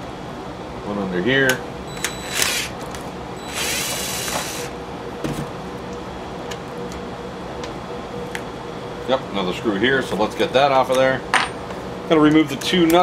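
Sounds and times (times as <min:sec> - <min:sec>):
cordless drill running: 0:01.9 - 0:02.8, 0:03.4 - 0:04.7.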